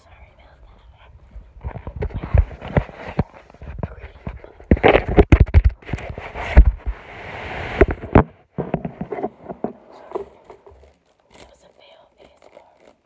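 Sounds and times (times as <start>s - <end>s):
rustling: 0.5s - 13.0s
fabric rubbing against microphone: 0.6s - 13.0s
phone handling knocks and thumps: 4.7s - 6.8s.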